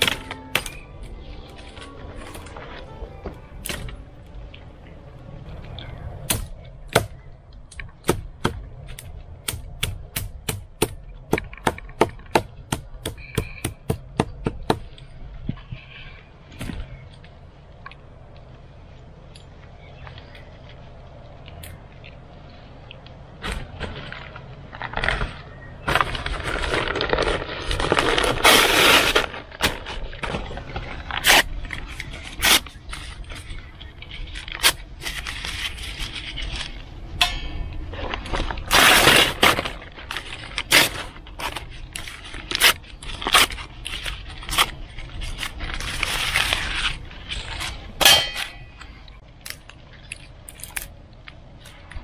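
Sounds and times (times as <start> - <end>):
paper crumpling and tearing: 24.8 - 36.8, 38.2 - 47.9
dry twigs snapping: 48.8 - 52.0.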